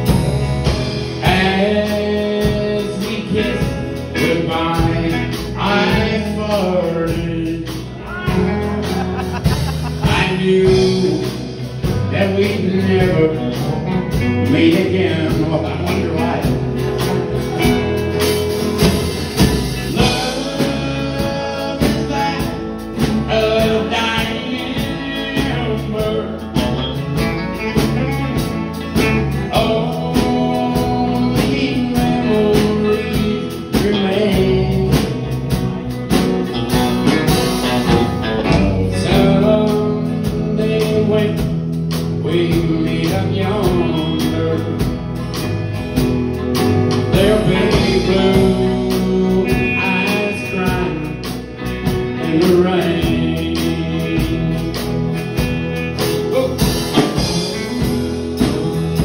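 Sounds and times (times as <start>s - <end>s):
acoustic guitar: 0.0s - 59.0s
electric guitar: 0.0s - 59.0s
man singing through a pa: 1.1s - 8.7s, 10.0s - 11.4s, 12.1s - 16.6s, 19.8s - 26.8s, 29.3s - 35.5s, 38.5s - 44.9s, 47.1s - 51.4s, 52.1s - 54.9s, 56.3s - 59.0s.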